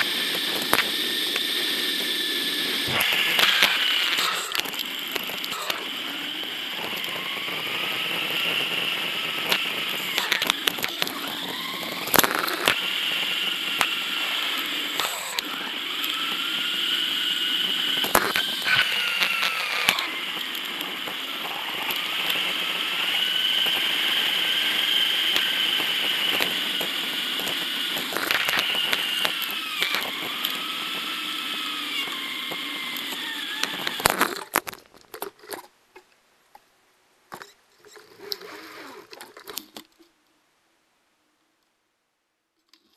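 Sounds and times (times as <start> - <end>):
hum of bike tyres and drivetrain: 0.0 - 36.6, 37.3 - 40.2
clicks and knocks from bumps: 32.5 - 36.6.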